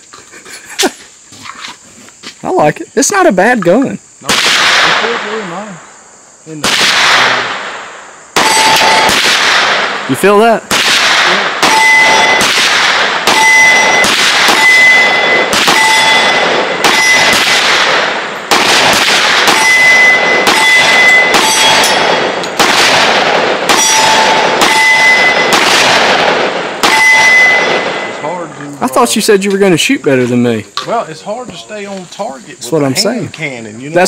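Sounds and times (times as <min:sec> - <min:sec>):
pistol shots: 0:04.2 - 0:05.6, 0:06.5 - 0:28.2
bullets ringing on steel target: 0:08.4 - 0:09.2, 0:11.6 - 0:12.5, 0:13.3 - 0:17.5, 0:19.5 - 0:22.6, 0:23.7 - 0:25.6, 0:26.8 - 0:28.2.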